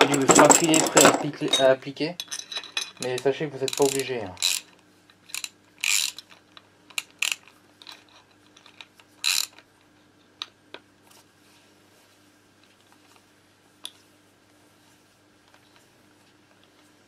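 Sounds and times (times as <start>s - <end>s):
metal tools clinking: 0.0s - 4.6s.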